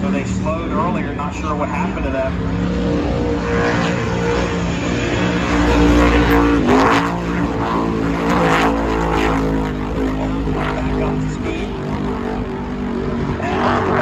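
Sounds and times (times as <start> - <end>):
helicopter flying overhead: 0.0 - 14.0
race boat engines running: 0.0 - 14.0.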